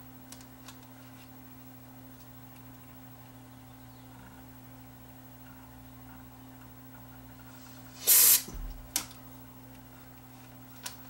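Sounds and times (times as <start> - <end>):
aerosol can spraying: 7.8 - 8.8.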